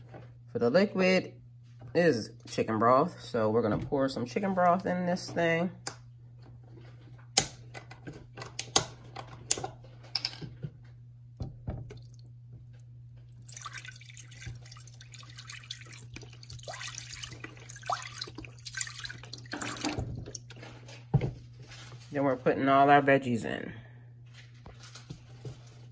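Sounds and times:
clicks and knocks of handling: 6.8s - 10.8s
broth pouring into a pot: 13.4s - 20.5s.

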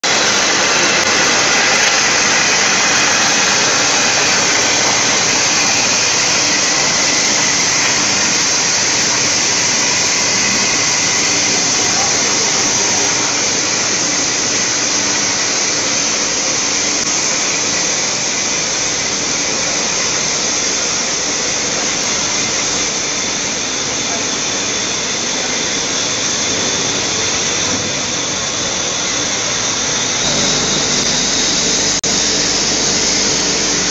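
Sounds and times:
industrial machinery din: 0.0s - 33.9s.

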